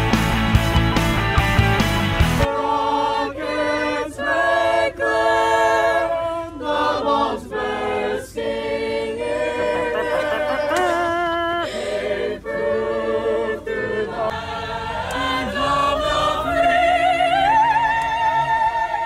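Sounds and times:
rock backing music: 0.0s - 2.5s
choir singing a cappella: 2.4s - 19.0s.

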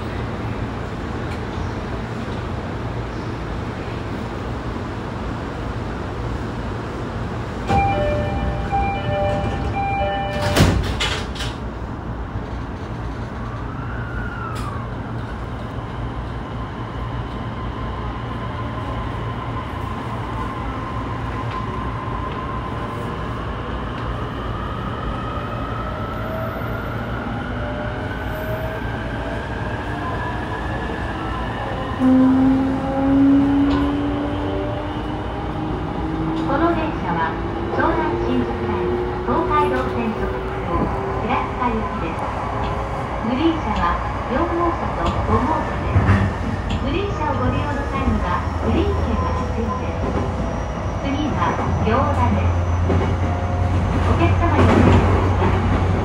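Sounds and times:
train doors shutting: 7.4s - 15.8s, 30.9s - 56.0s
train door chime: 7.7s - 11.0s.

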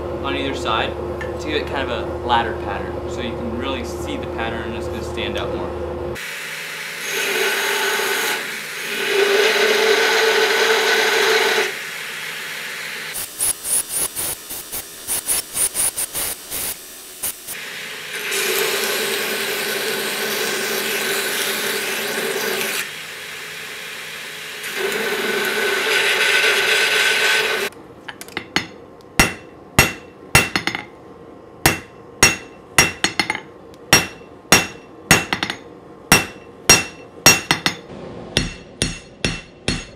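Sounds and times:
belt grinder grinding steel: 18.1s - 23.0s, 24.6s - 27.7s
hammer striking steel on anvil: 28.1s - 30.9s, 31.6s - 39.9s.

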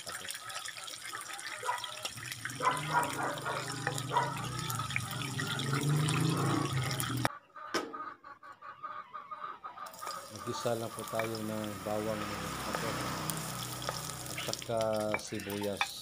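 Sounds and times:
pepper sizzling in hot oil: 9.9s - 16.0s.

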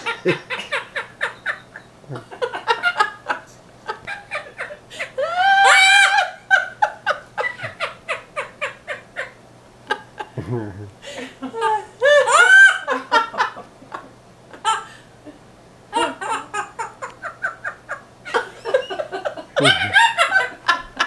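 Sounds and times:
parrot mimicking laughter: 11.6s - 13.2s, 15.9s - 20.5s.

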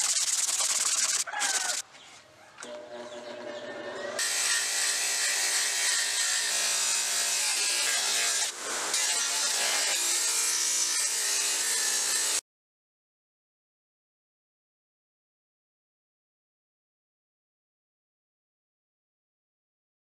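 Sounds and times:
power tool cutting wood: 2.6s - 12.4s.

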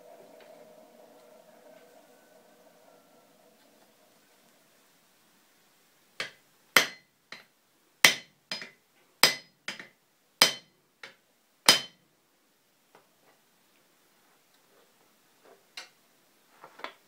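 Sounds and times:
hammer striking iron on anvil: 6.2s - 10.7s, 11.7s - 12.0s.

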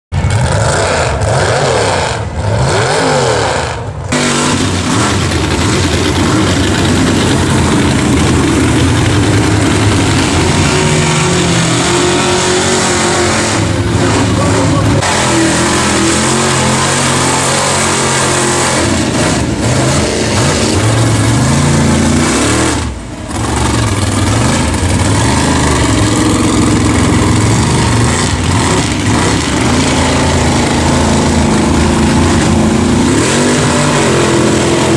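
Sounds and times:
truck engine revving hard: 0.1s - 34.9s.

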